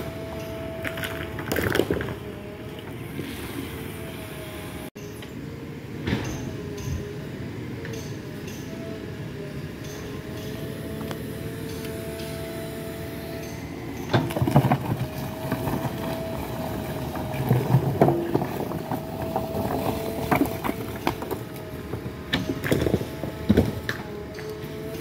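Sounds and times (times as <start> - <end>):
diesel engine running: 0.0 - 5.0, 6.5 - 25.0
backhoe bucket clanking: 13.5 - 24.9.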